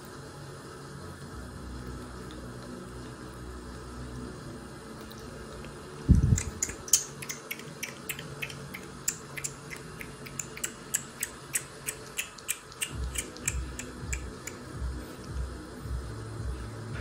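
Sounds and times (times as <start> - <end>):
kitten suckling wet smacking clicks: 5.1 - 14.7.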